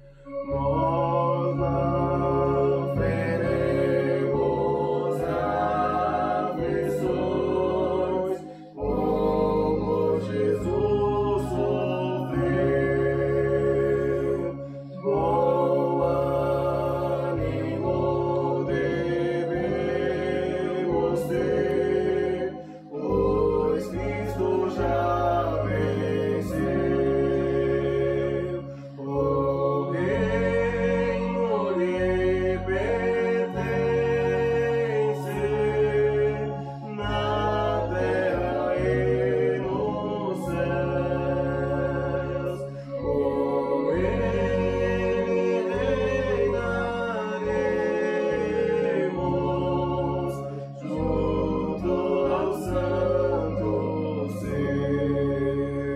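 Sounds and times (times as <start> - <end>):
electronic organ: 0.0 - 55.9
group singing a hymn: 0.0 - 55.9.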